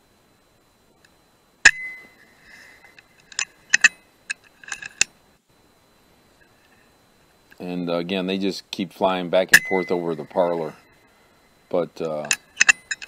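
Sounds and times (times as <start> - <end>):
metallic clicks of rifle action: 3.3 - 5.1, 12.1 - 13.0.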